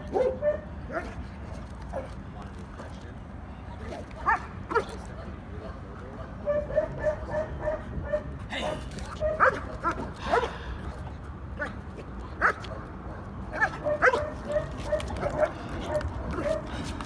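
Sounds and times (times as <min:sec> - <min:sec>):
dog barking: 0:00.1 - 0:01.2, 0:06.2 - 0:08.3, 0:09.2 - 0:10.6, 0:12.4 - 0:12.7, 0:13.5 - 0:16.7.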